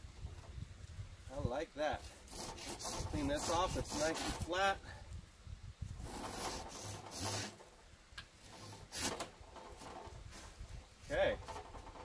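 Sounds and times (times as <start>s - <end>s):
gloved hand brushing wood: 1.3s - 4.8s, 5.9s - 7.8s.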